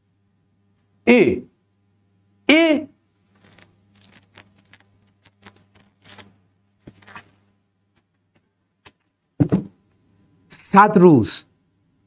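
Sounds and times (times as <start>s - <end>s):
low steady hum: 0.0s - 12.0s
faint rustles and clicks: 3.1s - 9.3s.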